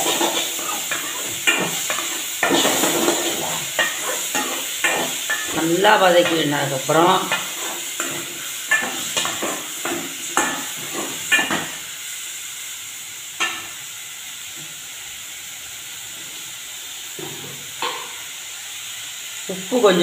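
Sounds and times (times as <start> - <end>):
spoon scraping and clinking pot: 0.0 - 5.6, 7.3 - 11.8
food sizzling: 0.0 - 20.0.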